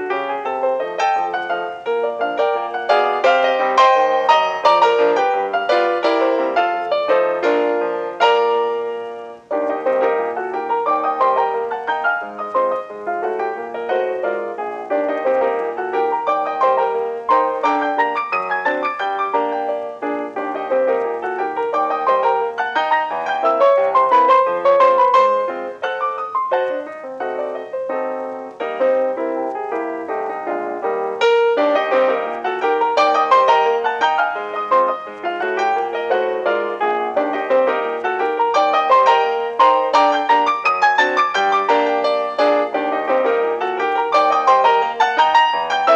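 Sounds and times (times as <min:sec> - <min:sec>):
solo piano music: 0:00.0 - 0:45.9.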